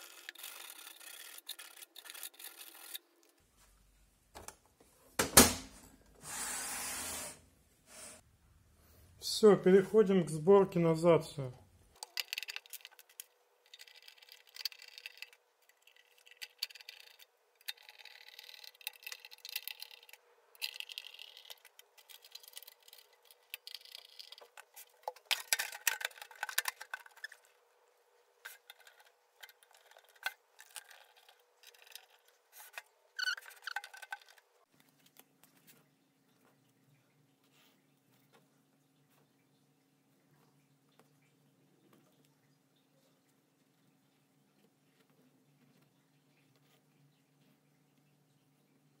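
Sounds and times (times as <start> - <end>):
metallic clicks and scrapes: 0.0 - 3.4.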